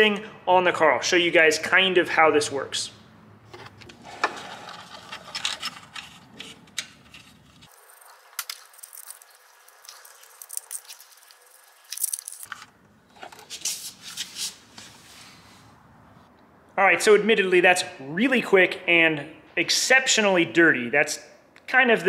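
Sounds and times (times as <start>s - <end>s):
paper rustling and crinkling: 4.1s - 12.7s.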